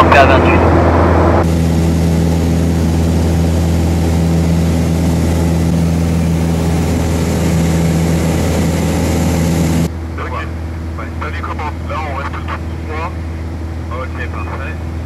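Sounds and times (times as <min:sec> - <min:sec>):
propeller aircraft engine droning: 0:00.0 - 0:15.0.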